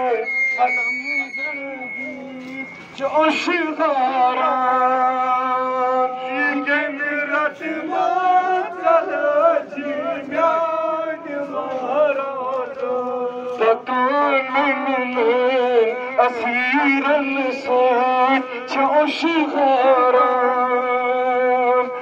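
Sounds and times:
man chanting a lament: 0.0 - 22.0.

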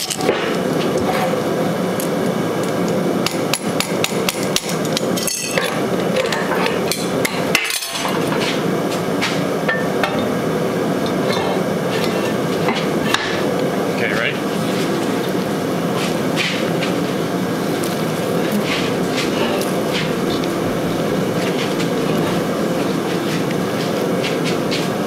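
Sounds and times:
loud rushing workshop equipment: 3.2 - 25.0
metal clanks and hammer strikes: 9.2 - 10.3.

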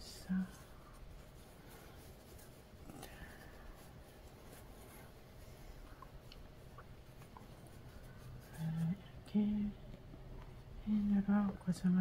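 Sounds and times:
cloth rustling: 0.0 - 9.4.

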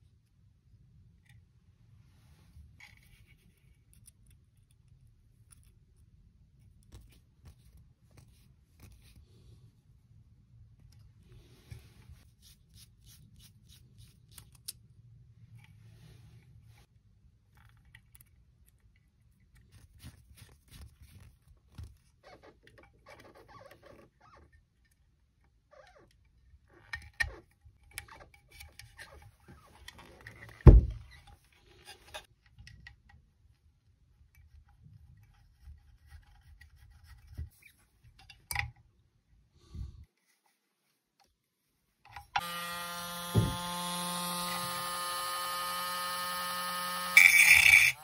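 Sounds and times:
heavy thump: 43.4 - 43.6.

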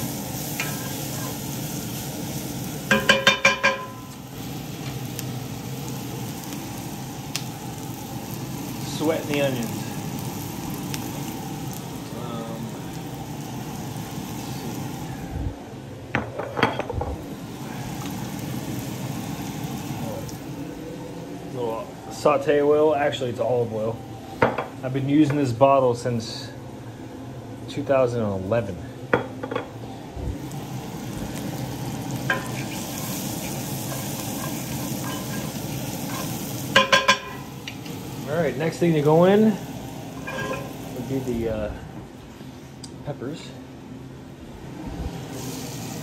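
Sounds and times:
onions sizzling in oil: 0.0 - 15.4, 17.0 - 22.2, 30.3 - 42.5, 45.1 - 46.0.

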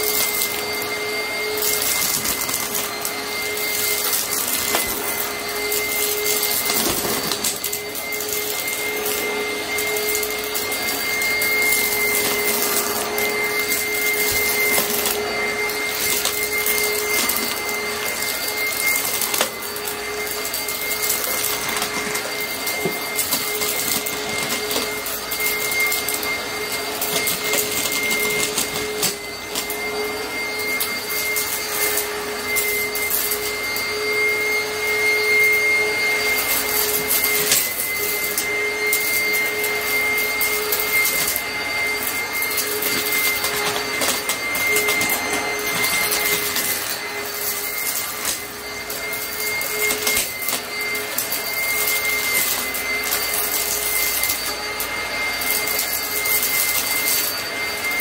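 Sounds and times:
vacuum cleaner motor whine: 0.0 - 58.0.

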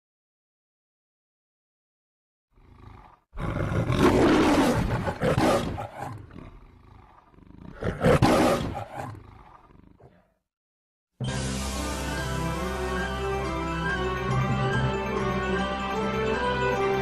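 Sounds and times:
lion roaring: 2.6 - 10.4.

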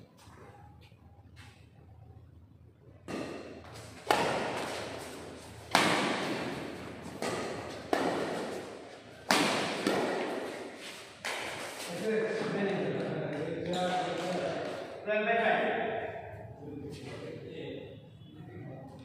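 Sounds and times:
rackets striking shuttlecock: 3.1 - 11.8.

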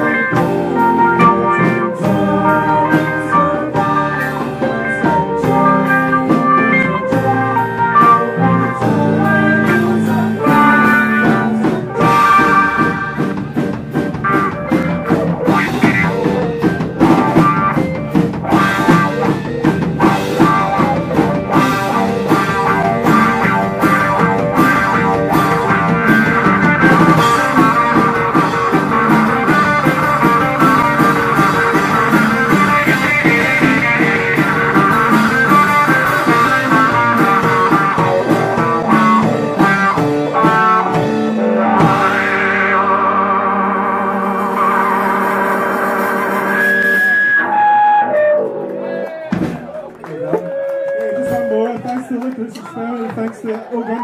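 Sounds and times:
combo organ: 0.0 - 48.6
drum kit: 0.0 - 50.6
electric guitar: 0.0 - 53.2.

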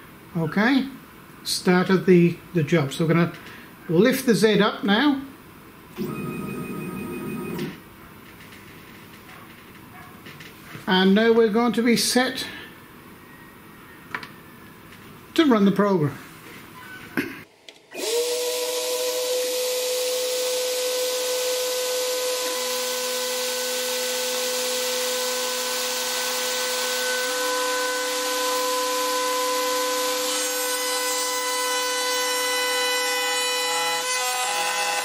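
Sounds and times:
end mill cutting wood: 17.9 - 35.0
router spindle whine: 17.9 - 35.0.

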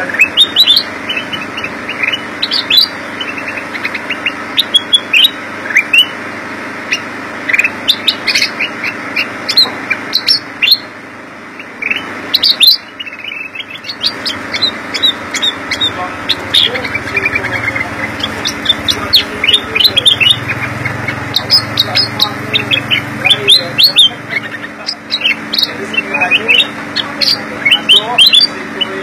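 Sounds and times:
bird chirping: 0.0 - 6.2, 6.8 - 29.0
steady background noise: 0.0 - 29.0.

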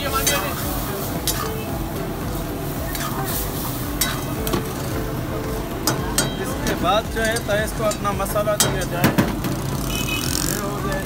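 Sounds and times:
sauce sizzling in a wok: 0.0 - 8.4
ladle clinking and scraping wok: 0.0 - 10.1.

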